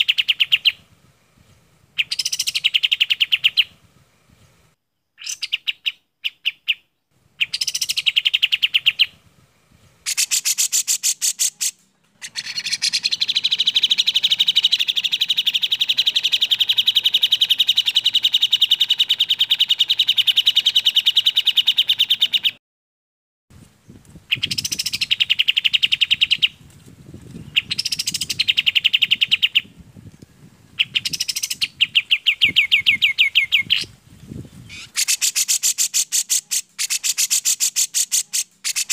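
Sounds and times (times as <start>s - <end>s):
bulbul birdsong with trills: 0.0s - 9.2s, 9.9s - 22.6s, 23.8s - 26.6s, 27.3s - 38.9s.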